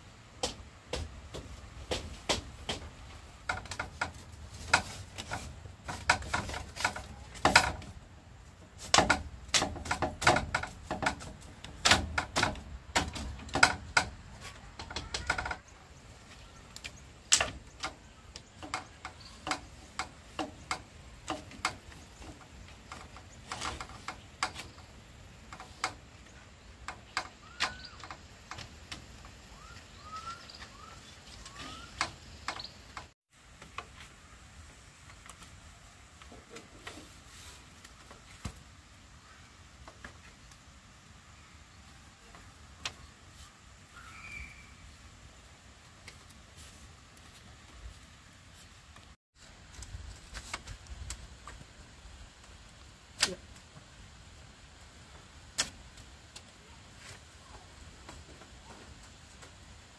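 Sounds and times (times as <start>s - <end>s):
irregular knocks and taps: 0.4s - 8.0s, 8.8s - 15.6s, 17.3s - 26.2s
bird chirps: 29.5s - 33.0s, 43.9s - 45.0s.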